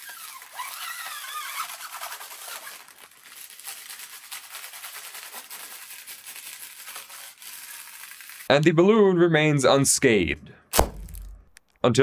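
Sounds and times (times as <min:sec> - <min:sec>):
scratchy rustle: 0:00.0 - 0:08.5.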